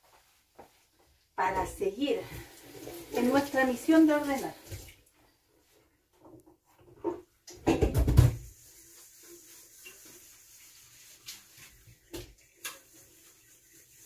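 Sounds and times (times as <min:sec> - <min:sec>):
kitchenware clicks and knocks: 0:06.9 - 0:08.4
sponge rubbing kettle: 0:08.5 - 0:12.0, 0:12.7 - 0:14.0.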